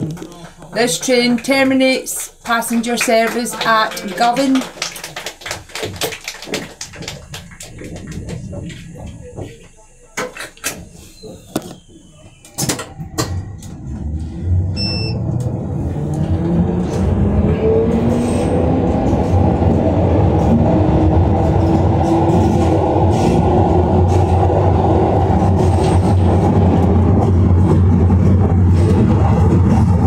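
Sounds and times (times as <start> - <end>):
train wheels rumbling on rail: 5.8 - 9.8, 10.4 - 30.0.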